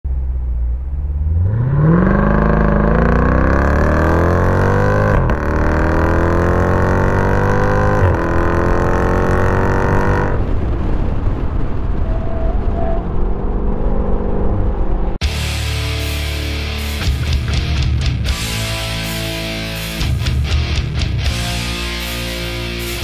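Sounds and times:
road noise: 0:00.0 - 0:23.0
car engine accelerating hard: 0:00.2 - 0:11.0.

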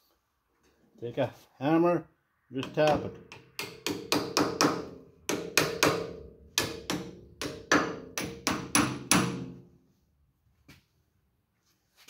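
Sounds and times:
hammer tapping steel shaft: 0:02.6 - 0:09.6.

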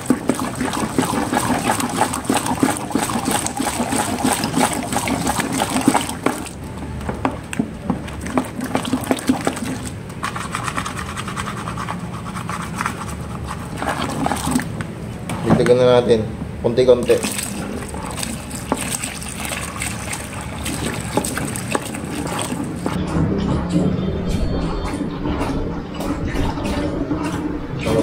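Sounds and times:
stick stirring gel in bucket: 0:00.0 - 0:14.8, 0:16.8 - 0:23.0.

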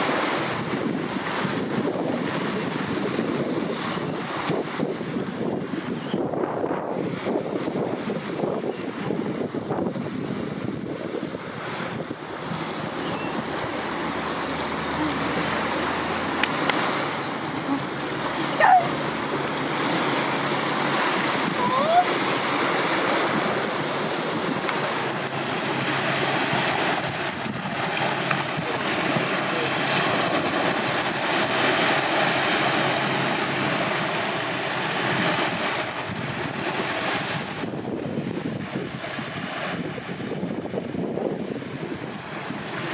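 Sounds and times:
sea water lapping: 0:00.0 - 0:42.9
wind buffeting microphone: 0:00.0 - 0:42.9.

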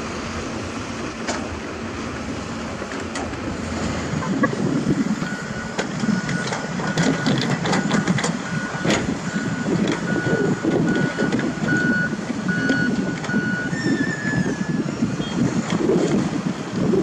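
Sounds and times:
diesel engine under load: 0:00.0 - 0:17.0
reversing alarm beeping: 0:05.1 - 0:15.5.

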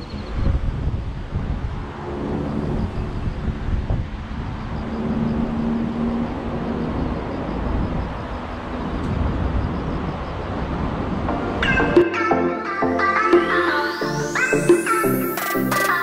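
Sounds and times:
wind buffeting microphone: 0:00.0 - 0:11.3.

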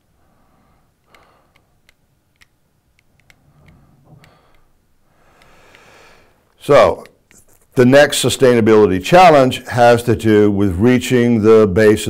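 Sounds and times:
soft noise: 0:00.0 - 0:09.4
faint small clicks: 0:01.0 - 0:04.7.

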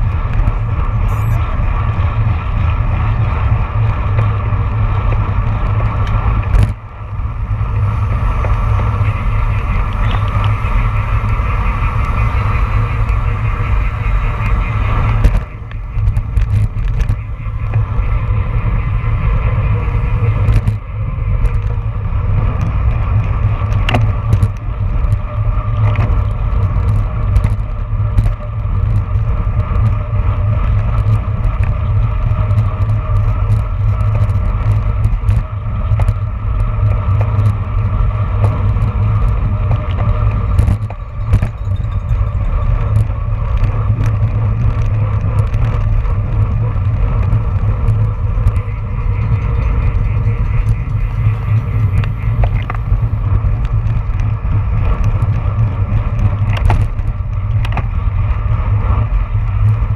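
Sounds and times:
bike clicks and rattles: 0:00.0 - 0:59.9
tyres humming on asphalt: 0:00.0 - 0:59.9
wind rushing over microphone: 0:00.0 - 0:59.9.

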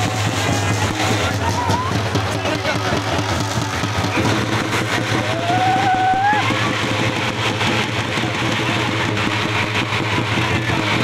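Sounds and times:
group of drums playing fast: 0:00.0 - 0:11.0
drawn-out high cry: 0:05.3 - 0:06.7.

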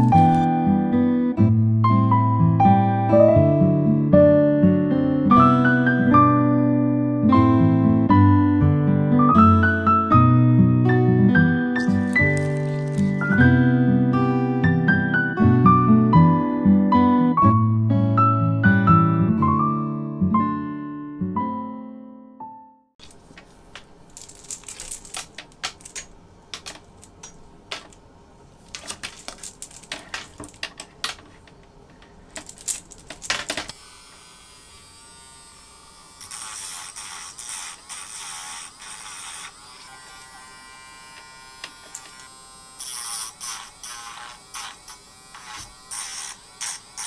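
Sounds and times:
plastic chain links clicking: 0:24.0 - 0:28.0, 0:28.7 - 0:33.7
small electric motor whirring: 0:33.7 - 0:47.0.

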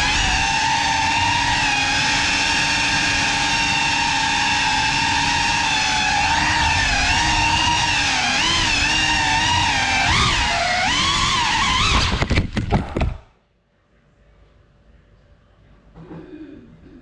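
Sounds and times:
drone propellers whining: 0:00.0 - 0:12.2.

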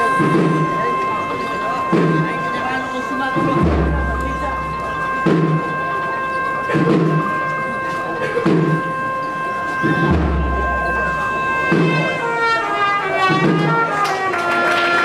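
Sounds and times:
brass band playing a march: 0:00.0 - 0:15.0
slow drum beat: 0:01.8 - 0:02.5, 0:03.3 - 0:05.8, 0:06.7 - 0:09.0, 0:09.7 - 0:12.5.

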